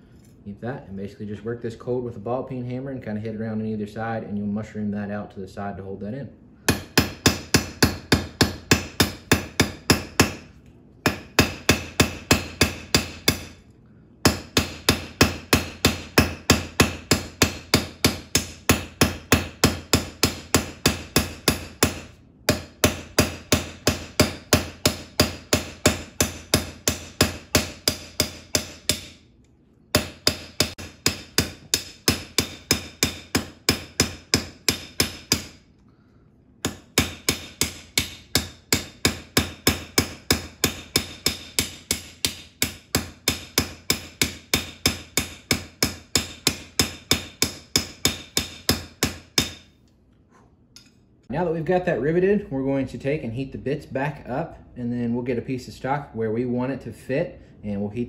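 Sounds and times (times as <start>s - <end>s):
hammer striking metal: 6.7s - 13.6s, 14.2s - 29.2s, 29.9s - 35.6s, 36.6s - 49.7s.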